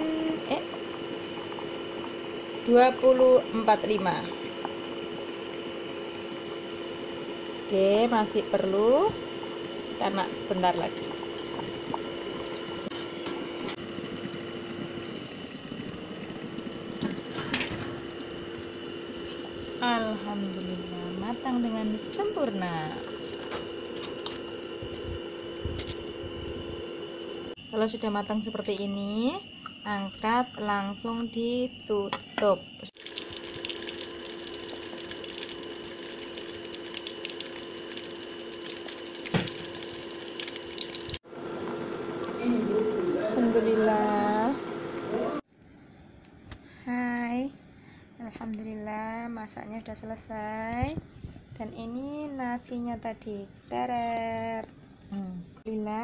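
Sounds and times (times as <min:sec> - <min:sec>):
induction cooktop humming: 0:00.0 - 0:56.0
meat sizzling in oil: 0:33.0 - 0:41.2.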